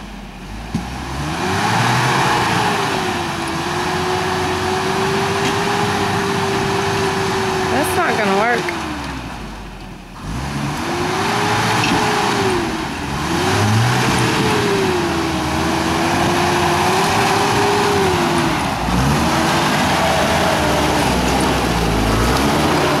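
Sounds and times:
truck engine revving: 0.0s - 23.0s.

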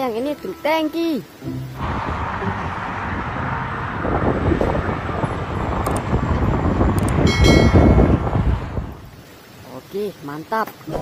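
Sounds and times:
truck driving past: 1.4s - 9.0s.

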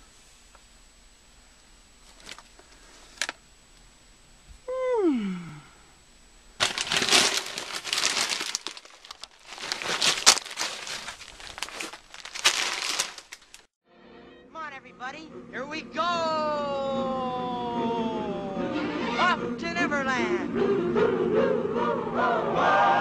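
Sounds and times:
plastic packaging crinkling: 6.6s - 13.7s.

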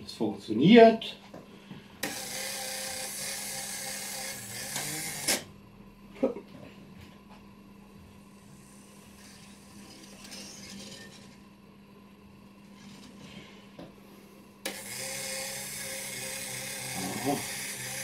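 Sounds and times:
steady low hum: 0.0s - 15.0s
turntable motor running: 2.0s - 5.5s, 14.6s - 18.0s.

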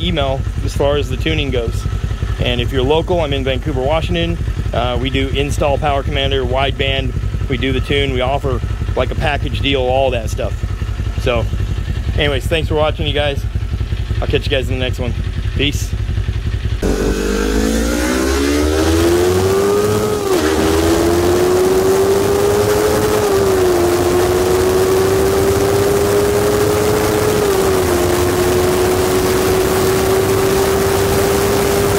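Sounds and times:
vehicle engine accelerating: 16.7s - 31.9s.

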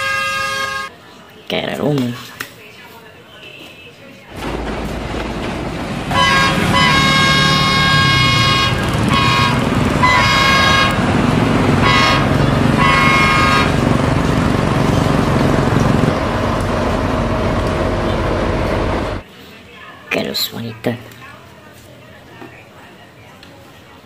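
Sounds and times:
locomotive horn blasts: 0.0s - 0.9s, 6.0s - 14.3s
locomotive engine low drone: 4.3s - 19.2s.

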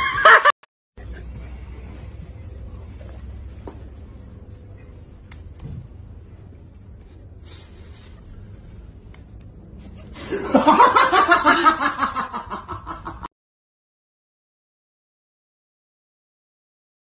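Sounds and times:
person laughing hard: 0.0s - 0.6s, 10.2s - 13.3s.

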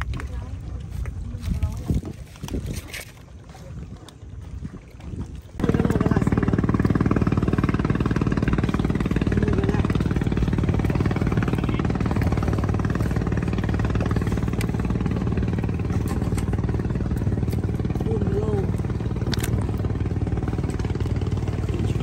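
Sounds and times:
small engine chugging: 5.6s - 22.0s.

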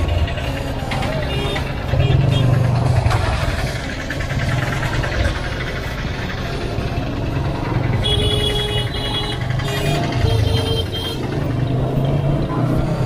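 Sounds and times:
motorcycle engine rumbling: 0.0s - 13.0s
vehicle horn beeping: 1.2s - 2.6s, 8.0s - 11.4s.

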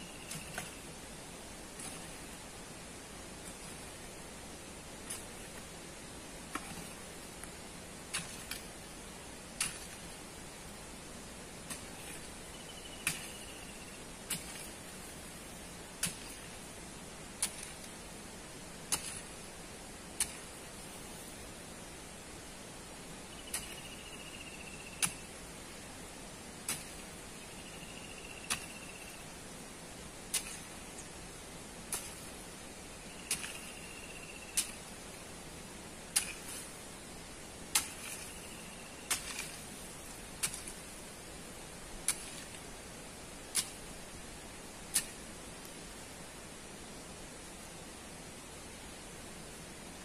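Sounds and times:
metal tool striking gravel: 0.0s - 0.9s, 1.8s - 2.3s, 6.5s - 7.0s, 8.1s - 8.7s, 9.5s - 10.2s, 11.7s - 15.1s, 16.0s - 16.6s, 17.4s - 17.9s, 18.9s - 19.4s, 20.2s - 20.5s, 23.3s - 25.3s, 26.7s - 29.2s, 30.3s - 30.9s, 31.9s - 32.3s, 33.1s - 34.9s, 36.1s - 36.8s, 37.7s - 40.8s, 42.1s - 42.6s, 43.5s - 43.8s, 44.9s - 45.2s
steady hiss: 0.0s - 50.0s.

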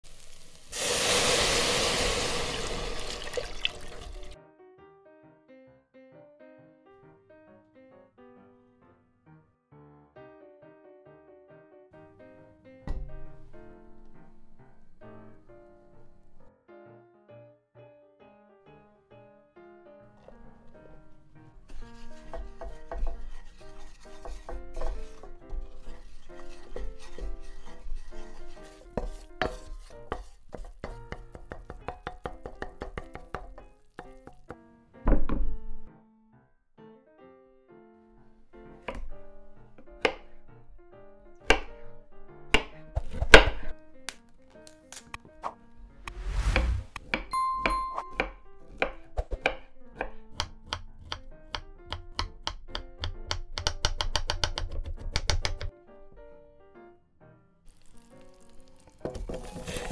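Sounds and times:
light background music: 19.7s - 36.0s, 46.9s - 54.1s
wooden spatula scraping a saucepan: 20.1s - 31.8s, 59.0s - 59.9s
knife chopping on wooden board: 21.9s - 34.5s, 41.4s - 41.8s, 42.5s - 43.7s, 48.1s - 55.7s.

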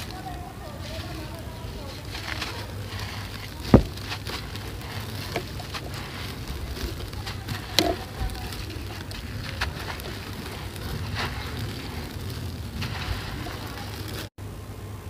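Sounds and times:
sand trickling and crackling: 0.0s - 14.4s
block crumbling by hand: 2.1s - 14.3s
sharp thump: 3.7s - 4.2s.

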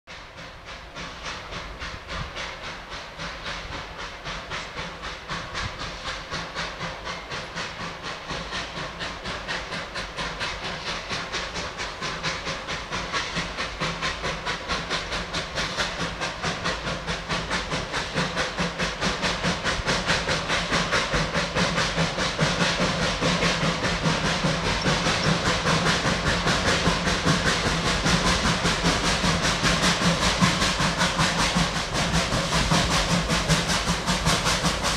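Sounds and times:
steam locomotive chuffing: 0.1s - 34.9s.

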